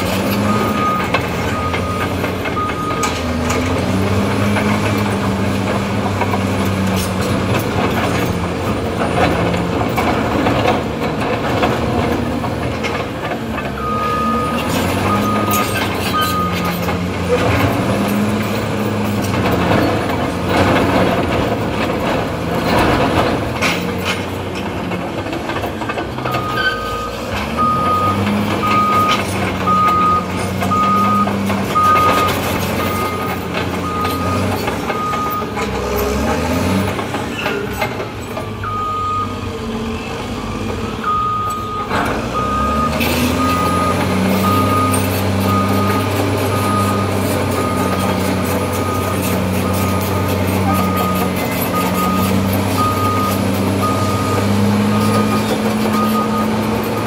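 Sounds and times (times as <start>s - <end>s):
bulldozer diesel engine under load: 0.0s - 57.0s
reversing alarm beeping: 0.4s - 3.2s, 13.8s - 16.9s, 26.3s - 35.5s, 38.6s - 39.5s, 41.0s - 57.0s.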